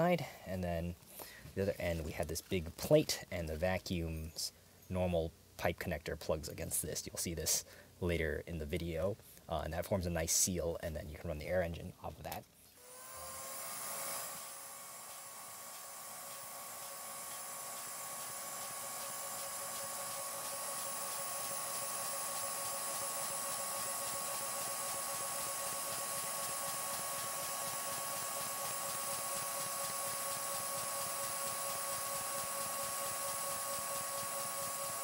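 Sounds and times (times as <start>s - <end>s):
toy engine flywheel spinning: 12.8s - 35.0s
vacuum cleaner whining: 12.8s - 35.0s.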